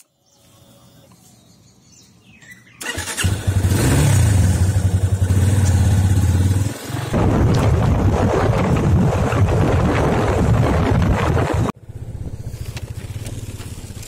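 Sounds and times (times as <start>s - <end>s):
motorcycle engine starting and idling: 2.7s - 7.9s, 11.8s - 14.0s
motorcycle riding on road: 2.8s - 14.0s
wind noise: 7.1s - 13.0s.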